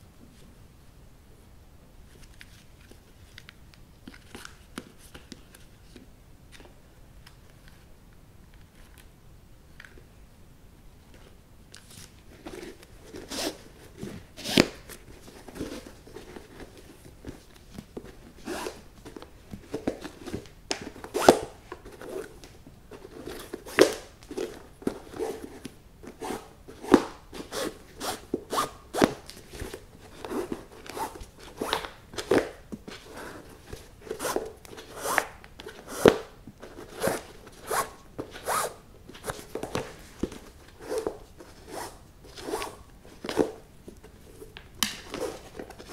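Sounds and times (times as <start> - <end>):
shoelace zipping through eyelets: 34.1 - 36.3, 36.9 - 39.4.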